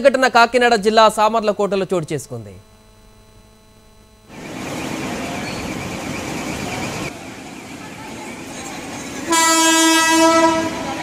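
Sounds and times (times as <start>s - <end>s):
lorry rumbling along railway track: 4.3s - 11.0s
faint background murmur: 7.4s - 11.0s
loud horn blast: 9.3s - 11.0s.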